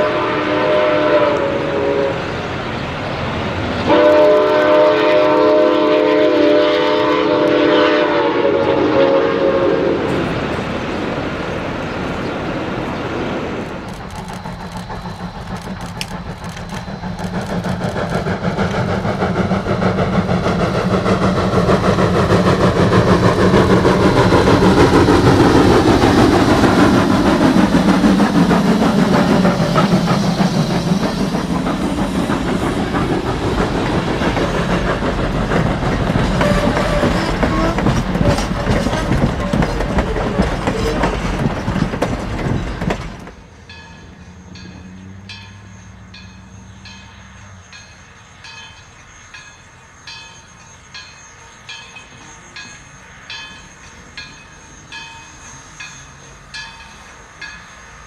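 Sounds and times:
steam locomotive chime whistle: 0.0 - 2.6, 3.8 - 10.3, 36.2 - 41.4, 43.4 - 58.0
train wheels clicking over rail joints: 10.0 - 58.0.

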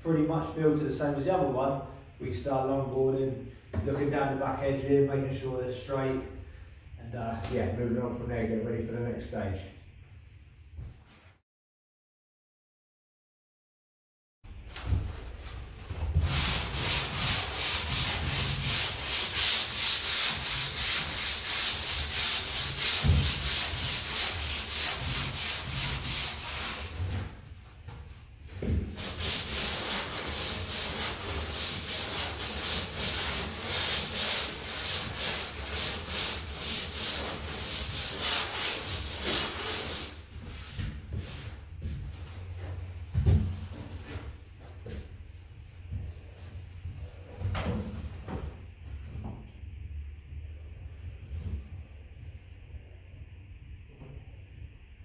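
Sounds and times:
sanding board rasping strokes: 16.1 - 27.2, 28.9 - 40.7.

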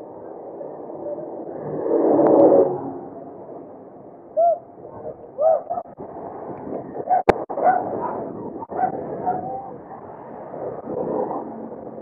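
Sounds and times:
wind and road rush: 0.0 - 12.0
hoot-like calls: 4.4 - 4.7, 5.4 - 5.9.

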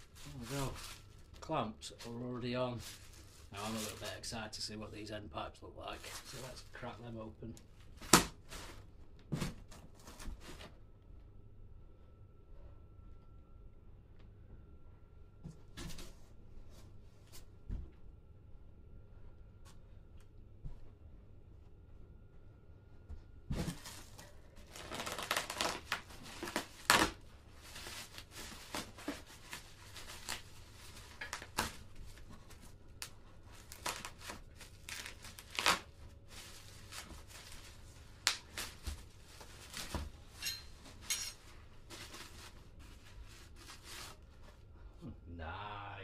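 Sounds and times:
bubble wrap crinkling and tearing: 0.0 - 4.3, 23.6 - 40.4, 41.7 - 44.6.

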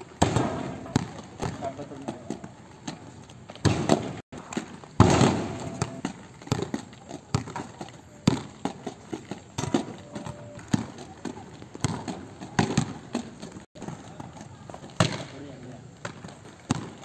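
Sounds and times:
skate wheels on paving tiles: 0.0 - 17.0
ball bouncing: 0.2 - 15.4, 16.0 - 17.0.

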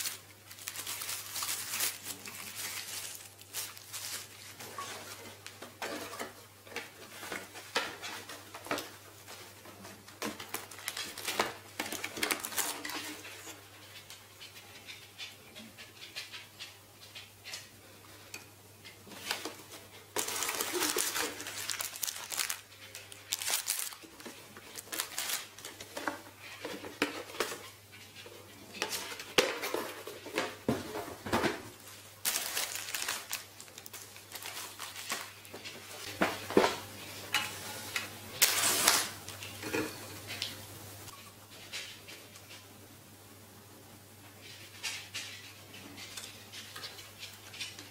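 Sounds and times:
plastic wrapping crinkling: 0.0 - 5.6, 10.1 - 13.5, 19.2 - 26.7, 31.8 - 36.1, 38.4 - 40.6
cardboard packaging rustling: 0.0 - 13.5, 19.2 - 27.6, 28.9 - 36.8.

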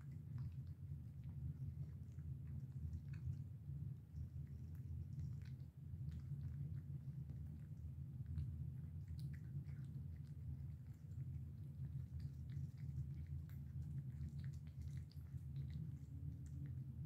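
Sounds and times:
cats chewing and lapping food: 0.0 - 17.0
steady low hum: 0.0 - 17.0.

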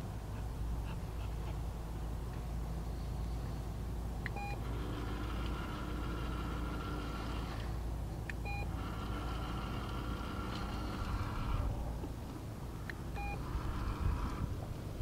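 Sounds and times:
dispenser motor whirring: 4.2 - 12.2, 12.8 - 15.0.

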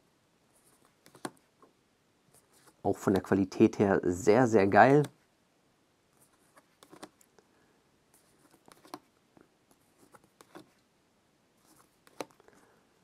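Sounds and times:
cards clicking and rustling: 6.5 - 7.3, 8.3 - 9.1, 11.8 - 12.6.

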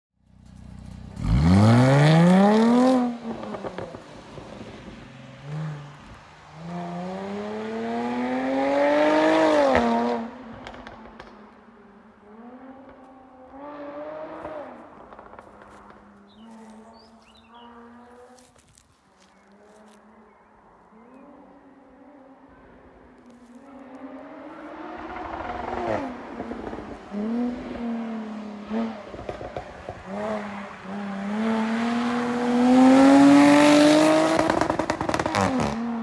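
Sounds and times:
car engine accelerating hard: 0.8 - 4.0, 23.7 - 36.0.

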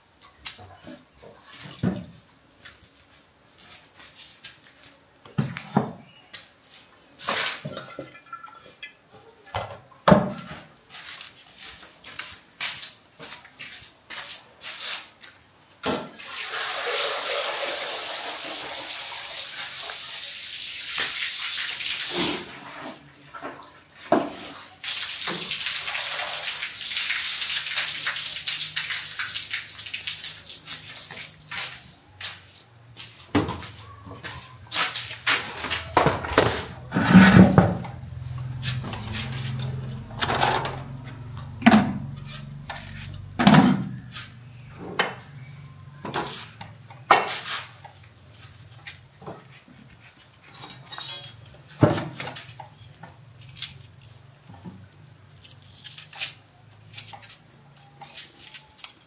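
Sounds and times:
water pouring: 16.2 - 23.8, 24.6 - 32.0.

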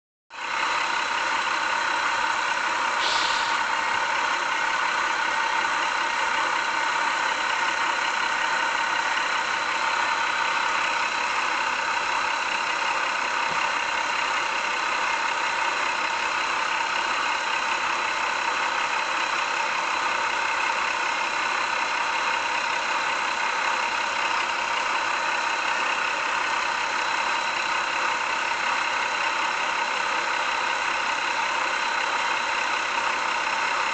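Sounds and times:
train running: 0.4 - 22.7
short high hiss: 3.0 - 3.8.

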